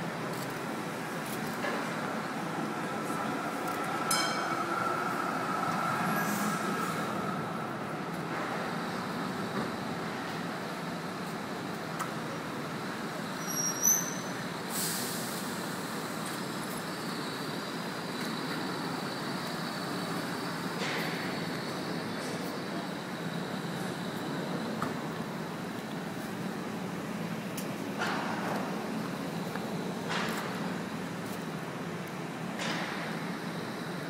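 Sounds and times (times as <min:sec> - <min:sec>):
city street traffic: 0:00.0 - 0:34.0
brief hiss: 0:14.7 - 0:15.5.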